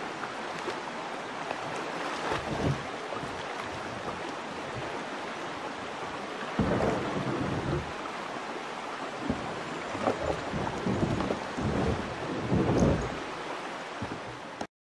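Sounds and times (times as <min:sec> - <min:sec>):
wind buffeting microphone: 0:06.6 - 0:08.0, 0:09.2 - 0:13.3.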